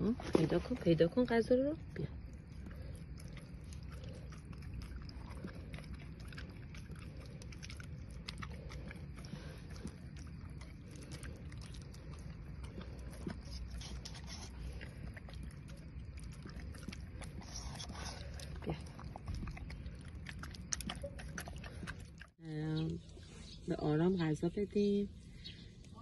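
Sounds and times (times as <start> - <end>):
steady low hum: 0.0 - 26.0
dog chewing wet food: 1.8 - 22.4.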